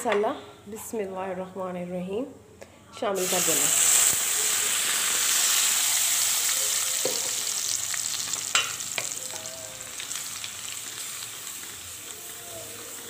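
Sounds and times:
paste sizzling in hot butter: 3.2s - 13.0s.

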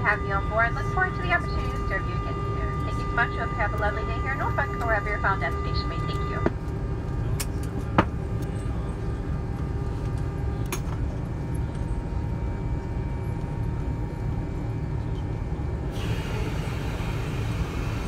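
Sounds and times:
aircraft cabin low rumble: 0.0s - 18.0s.

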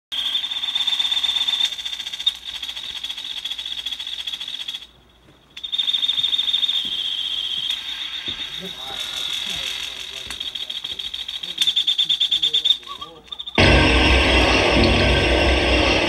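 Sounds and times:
high-pitched pulsing electronic tone: 13.6s - 16.0s.

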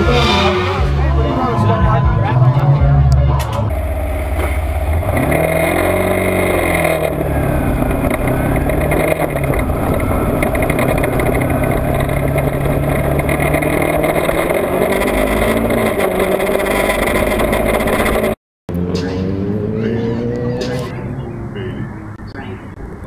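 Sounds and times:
motorcycle engines accelerating: 0.0s - 23.0s
wind rumble on camera: 4.8s - 18.4s.

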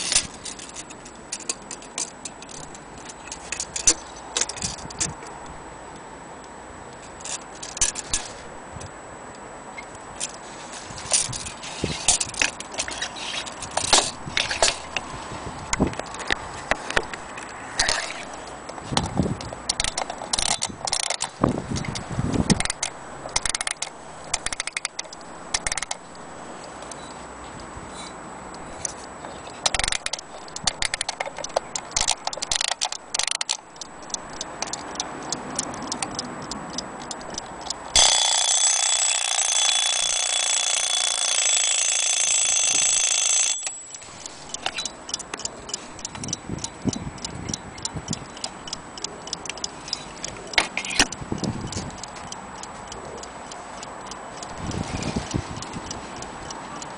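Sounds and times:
alarm clock ticking: 19.7s - 27.0s, 29.7s - 56.9s
alarm bell ringing: 38.0s - 45.1s.

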